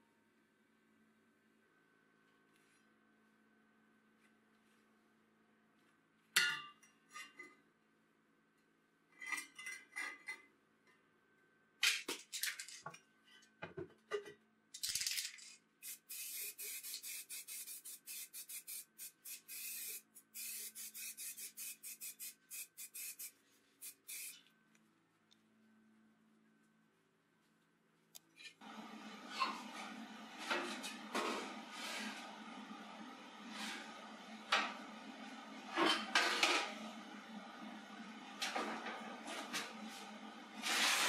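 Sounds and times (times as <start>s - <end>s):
aerosol spray paint hissing: 15.8s - 24.4s.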